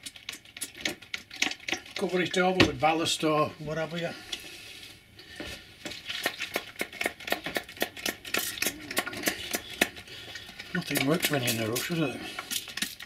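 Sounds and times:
hands clicking tapping and rustling: 0.0 - 2.1, 5.8 - 13.0.

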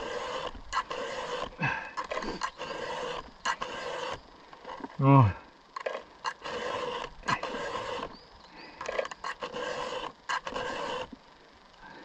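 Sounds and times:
hand file rasping on chainsaw chain: 0.0 - 4.9, 6.3 - 8.1, 8.8 - 11.2.

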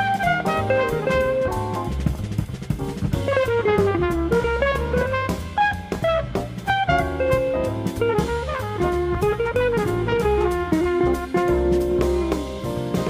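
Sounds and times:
bass line: 0.0 - 13.0
drum kit: 0.0 - 13.0
electric guitar solo: 5.6 - 12.7.

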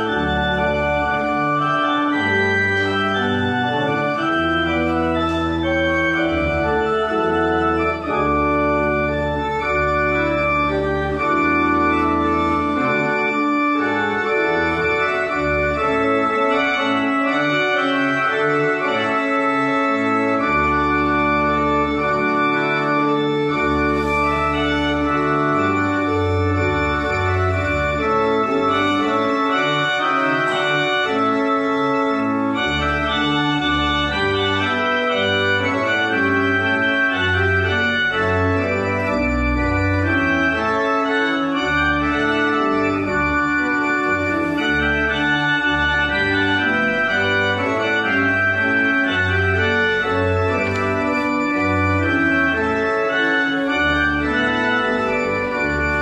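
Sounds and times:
pipe organ chords: 0.0 - 56.0.

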